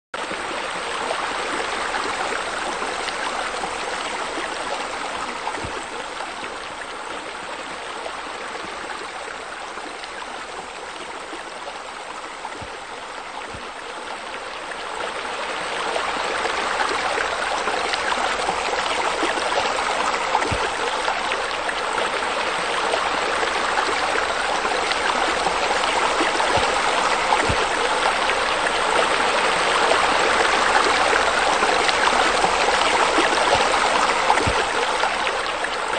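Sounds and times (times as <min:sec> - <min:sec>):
stream water rushing and trickling: 0:00.2 - 0:35.9.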